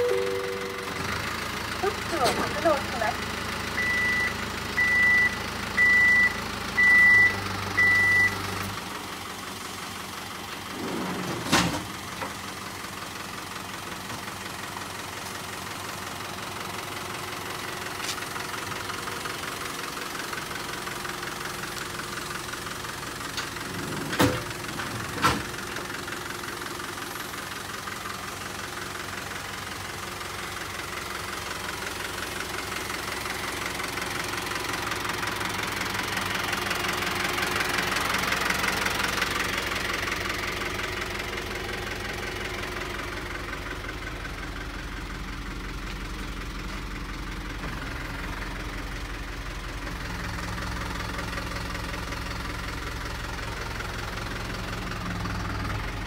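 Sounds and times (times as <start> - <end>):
short high beeps: 0.0 - 1.2
low hum: 0.0 - 1.3
diesel engine idling: 0.0 - 56.0.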